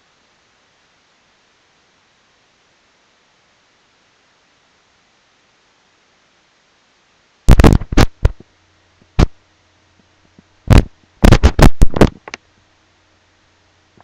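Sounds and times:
microphone handling bumps: 7.5s - 8.4s, 9.1s - 9.4s, 10.7s - 12.4s.

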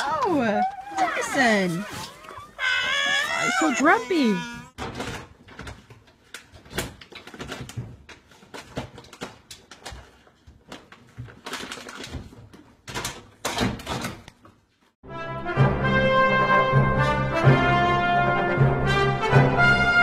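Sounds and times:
brass music: 15.0s - 20.0s.

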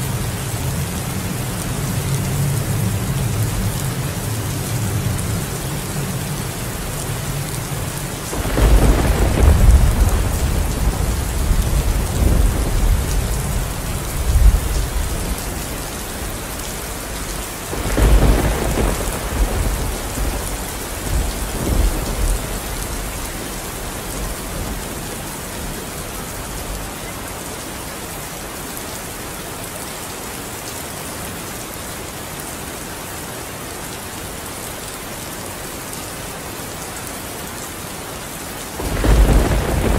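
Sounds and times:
steady rain: 0.0s - 39.9s
thunder rolling: 8.3s - 16.3s, 17.7s - 23.0s, 38.8s - 39.9s.

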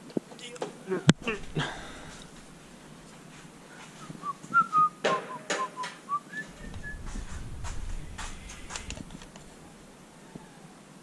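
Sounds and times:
person whistling: 4.0s - 7.1s
handling knocks and clicks: 7.2s - 9.6s.

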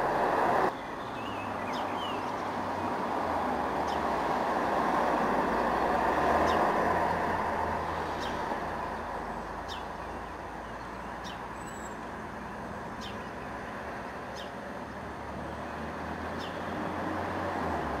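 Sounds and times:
road traffic passing: 0.0s - 18.0s
small bird high call: 9.3s - 12.1s.

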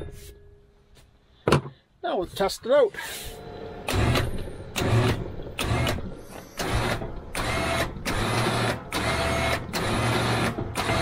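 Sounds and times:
electric winch motor running: 3.7s - 11.0s.

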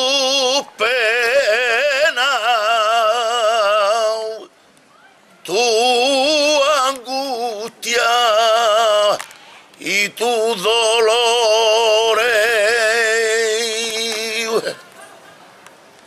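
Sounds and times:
man singing unaccompanied: 0.0s - 4.6s, 5.4s - 9.2s, 9.8s - 14.8s
singer breath: 9.3s - 9.8s.

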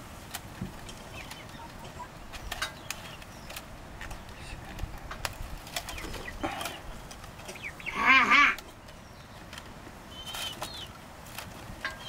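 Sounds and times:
low background noise: 0.0s - 12.0s
faint bird call: 7.5s - 8.7s.

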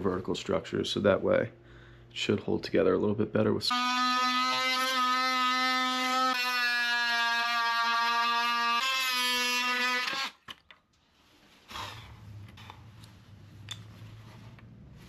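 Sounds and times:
low steady hum: 0.0s - 6.2s.

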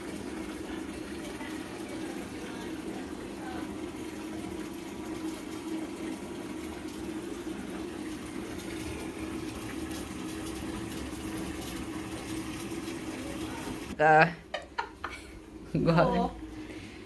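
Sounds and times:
water running from bath tap: 0.0s - 17.0s.

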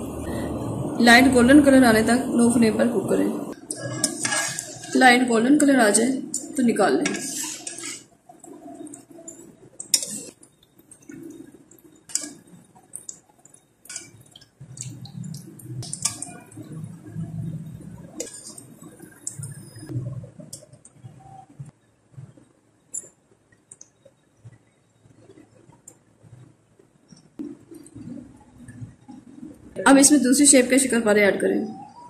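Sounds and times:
hot oil bubbling: 3.5s - 20.7s
metal skimmer scraping a pan: 3.7s - 5.2s, 7.0s - 8.1s.

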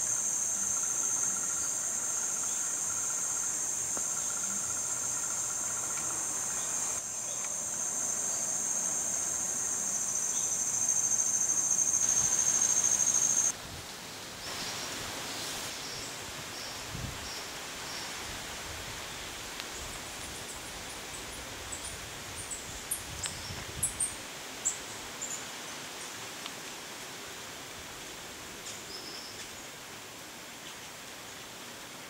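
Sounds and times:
insects buzzing drone: 0.0s - 13.6s.

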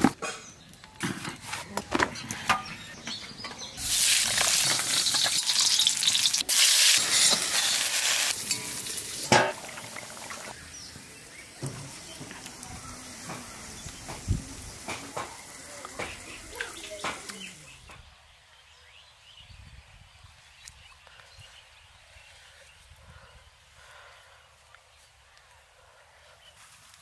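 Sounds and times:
eggs sizzling in hot oil: 3.8s - 17.8s.

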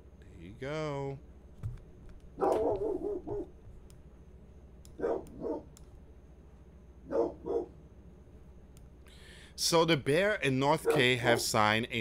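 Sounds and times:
dog barking: 2.4s - 3.5s, 5.0s - 5.7s, 7.1s - 7.8s, 10.8s - 11.6s.

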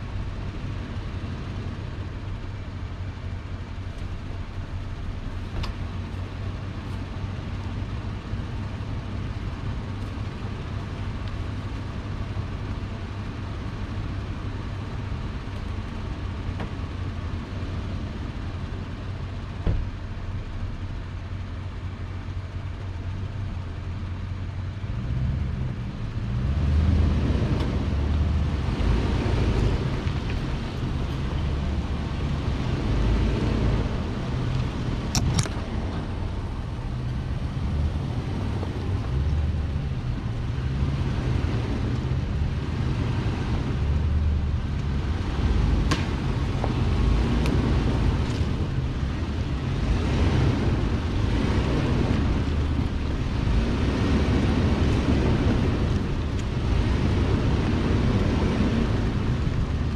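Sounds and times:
off-road vehicle engine rumbling: 0.0s - 59.9s
sharp snaps: 34.5s - 35.7s, 45.8s - 46.8s.

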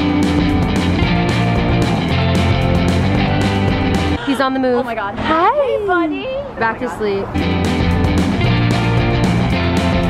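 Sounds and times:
rock music with guitar: 0.0s - 4.2s, 7.4s - 10.0s.

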